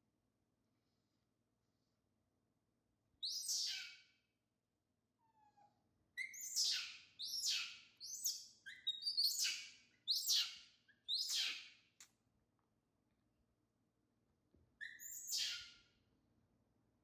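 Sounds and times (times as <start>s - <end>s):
macaque shrill calls: 3.3s - 4.0s, 6.2s - 10.5s, 14.8s - 15.8s.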